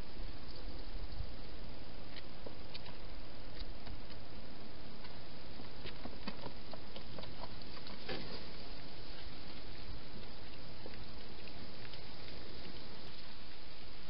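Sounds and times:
steady hiss: 0.0 - 14.0
hedgehog chewing and snuffling: 5.0 - 13.9.

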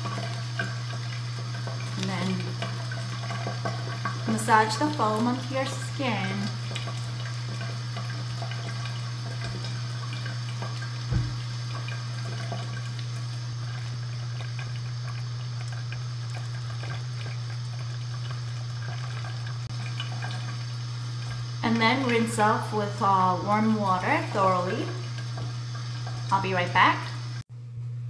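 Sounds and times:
tap water running: 0.0 - 27.5
knock: 11.1 - 11.4.

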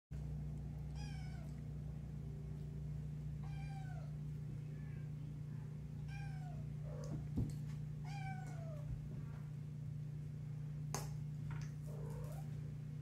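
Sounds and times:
kitten meowing: 1.0 - 1.5.

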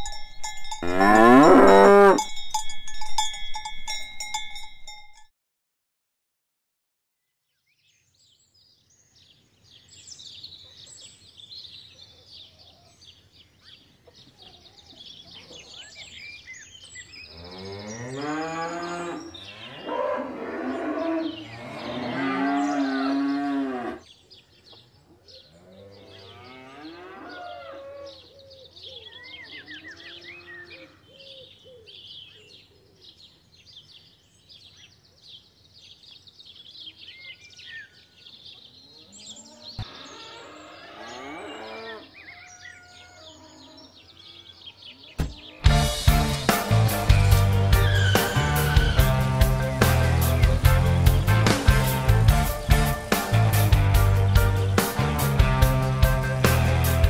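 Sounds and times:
cows mooing: 0.8 - 2.3, 17.3 - 24.0, 39.5 - 42.2, 47.1 - 50.9
small birds chirping: 20.6 - 46.1, 47.1 - 51.7.

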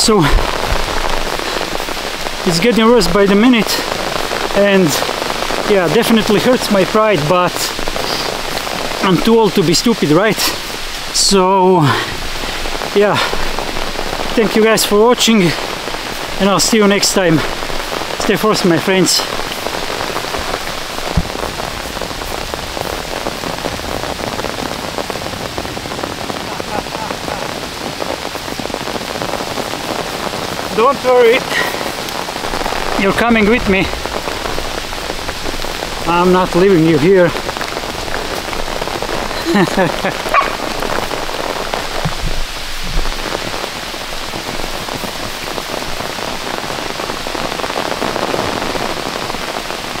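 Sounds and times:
heavy rain: 0.0 - 50.0
low thump: 21.1 - 21.4.

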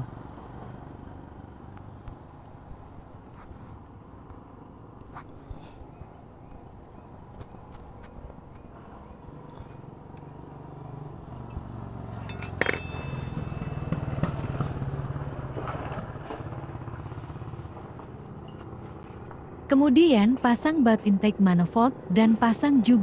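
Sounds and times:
motorcycle passing by: 0.0 - 2.4, 8.7 - 23.0
sharp metallic clink: 12.1 - 14.2.

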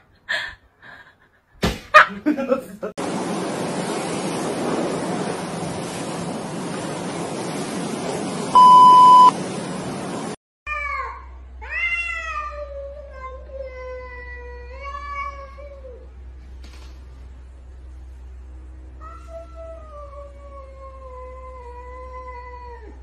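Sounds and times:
single-tone beep: 8.6 - 9.4.

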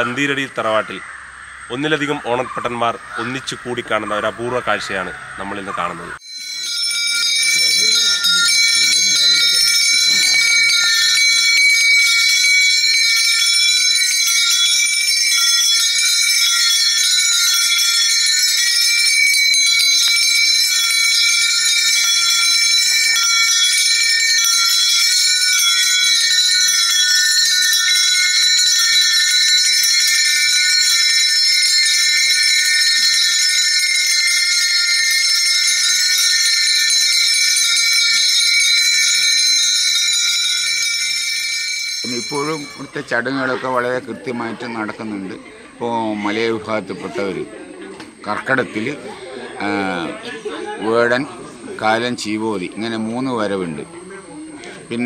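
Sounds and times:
hand bells jingling: 6.2 - 47.4.

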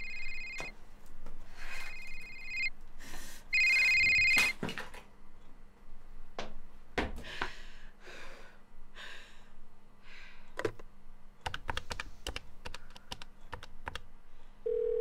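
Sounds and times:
telephone dial tone: 0.0 - 0.7, 1.8 - 2.7, 3.6 - 4.5, 14.7 - 15.0.

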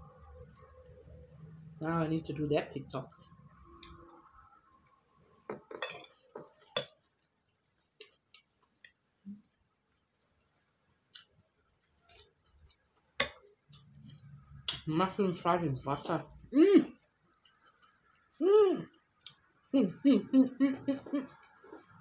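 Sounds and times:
cutlery clinking on a plate: 5.5 - 7.0.

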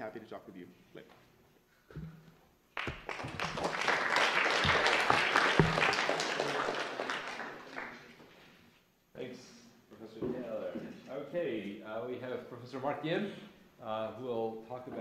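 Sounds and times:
audience applauding: 2.8 - 8.3.

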